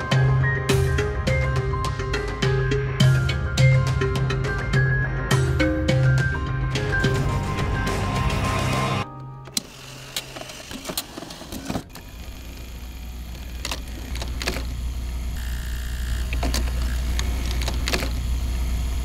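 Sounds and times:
machine low hum: 11.9 - 19.0.

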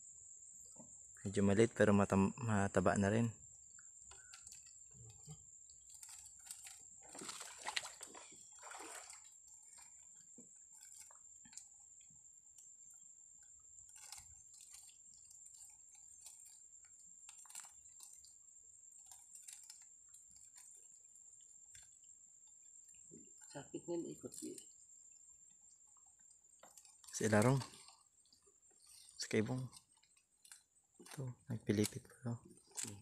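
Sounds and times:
wet fishing net rustling: 5.8 - 11.7.

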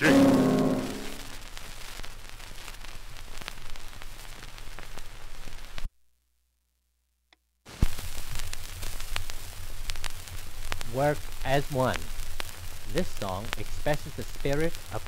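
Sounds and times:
low hum: 0.0 - 1.5
record surface hiss and crackle: 0.0 - 15.0.

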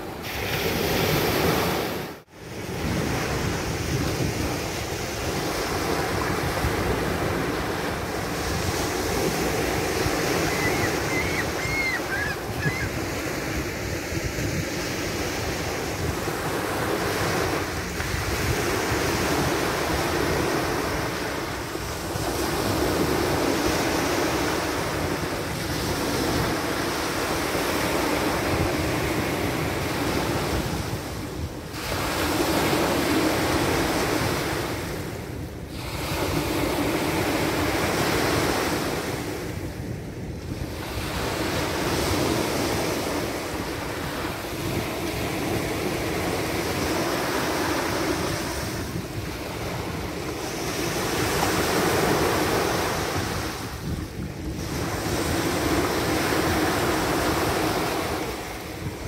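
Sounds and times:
small waves breaking on shore: 0.0 - 59.0
wind rumbling on microphone: 0.0 - 59.0
gull calls: 10.4 - 13.1.

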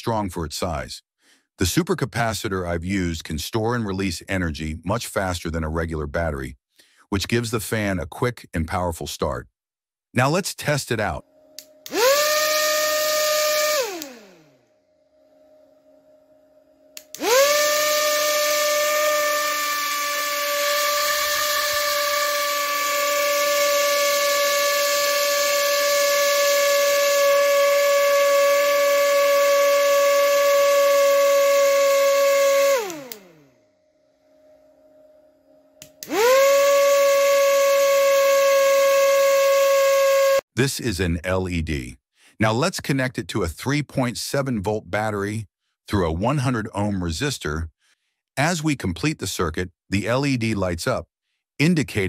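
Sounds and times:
motor winding down: 11.6 - 14.6, 17.0 - 33.6, 35.8 - 40.4
small motor propeller whine: 11.6 - 14.6, 15.2 - 33.6, 36.0 - 40.4
switch click: 35.8 - 36.1.

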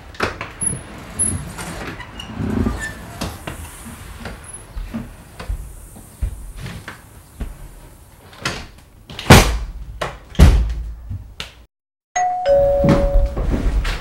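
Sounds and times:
wooden door banging shut: 8.4 - 11.0.

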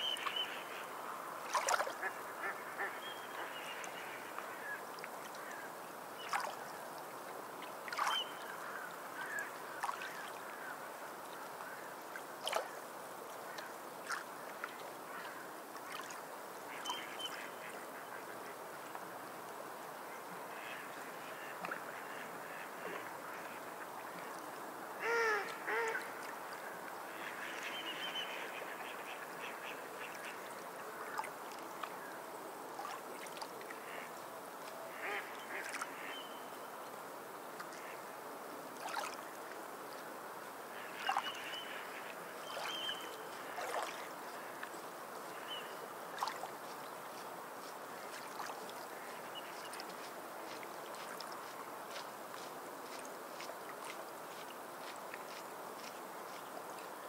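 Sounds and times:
sea bird calls: 25.0 - 26.1.

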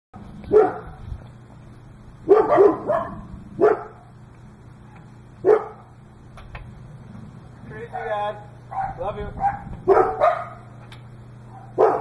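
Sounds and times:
dog barking: 0.5 - 1.0, 2.2 - 4.1, 4.9 - 5.9, 8.0 - 10.7, 11.5 - 12.0.

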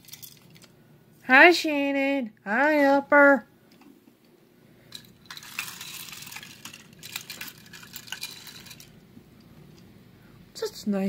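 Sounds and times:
close rustling with small clicks: 3.7 - 9.9.

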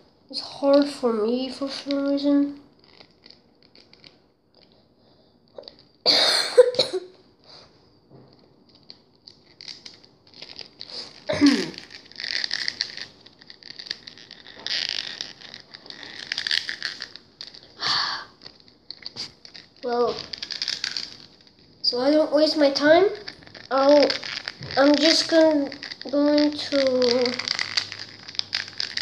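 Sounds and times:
scratchy crinkly rubbing: 0.6 - 4.8, 8.2 - 29.0
person coughing: 6.1 - 7.1, 11.3 - 11.8
plastic parts handled: 8.1 - 17.8, 18.4 - 21.7, 23.1 - 29.0.

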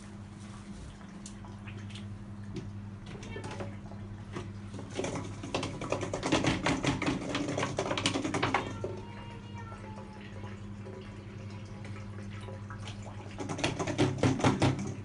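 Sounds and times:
steady low hum: 0.0 - 6.3
water splashing and sloshing in bucket: 0.0 - 15.0.

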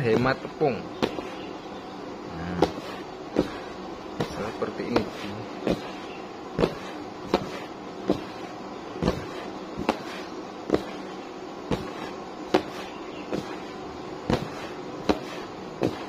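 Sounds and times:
dull thumps in flour: 0.0 - 1.5, 2.4 - 16.0
soft rustle of flour: 2.3 - 16.0.

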